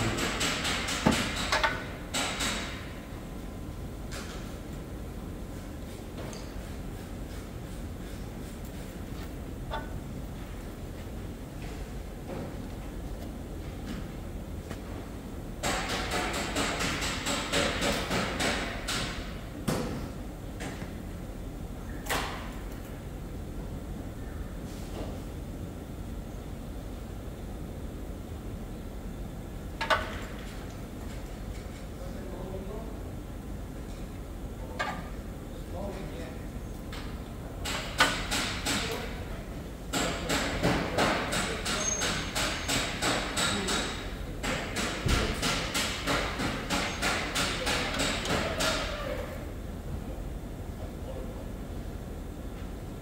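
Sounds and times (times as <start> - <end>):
sharp metallic knocks: 0.0 - 2.8, 15.6 - 19.3.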